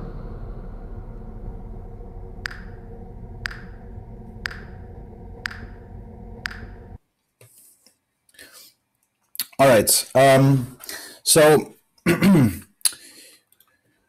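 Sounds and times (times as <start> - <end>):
steady low hum: 0.0 - 7.0
electronic click track ticking: 2.4 - 2.8, 3.4 - 7.0.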